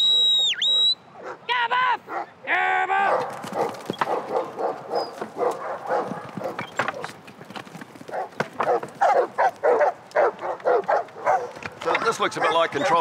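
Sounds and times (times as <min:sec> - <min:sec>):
dogs barking: 0:01.2 - 0:02.4, 0:03.0 - 0:07.2, 0:08.0 - 0:13.0.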